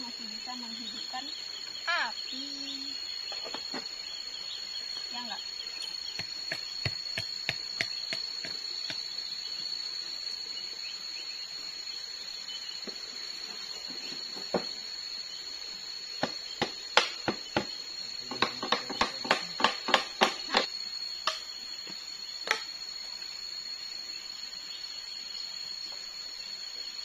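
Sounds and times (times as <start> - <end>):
machete chopping wood: 16.2 - 20.7.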